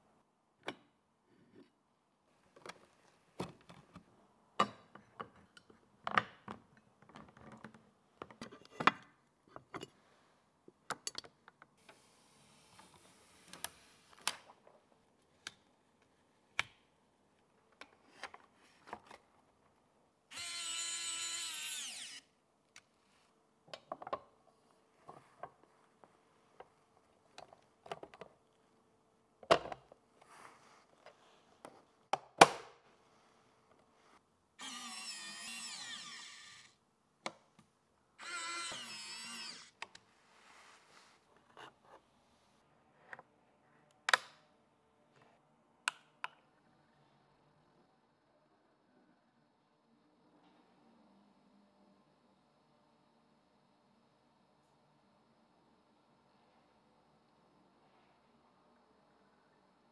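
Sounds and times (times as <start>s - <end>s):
electric screwdriver whine: 20.3s - 22.2s, 34.6s - 36.7s, 38.2s - 39.8s.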